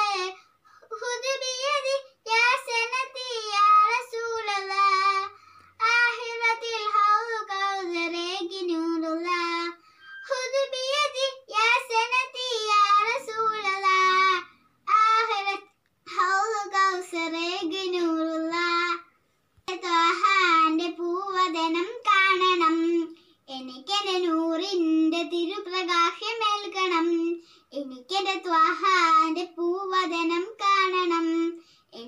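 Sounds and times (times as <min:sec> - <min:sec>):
girl singing unaccompanied: 0:00.0 - 0:32.0.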